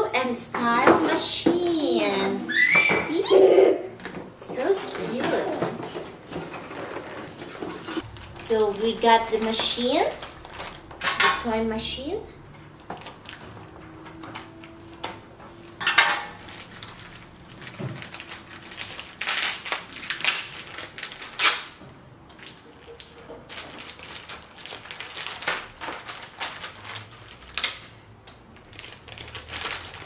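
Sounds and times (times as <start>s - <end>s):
plastic bags crinkling: 4.6s - 11.5s, 12.4s - 30.0s.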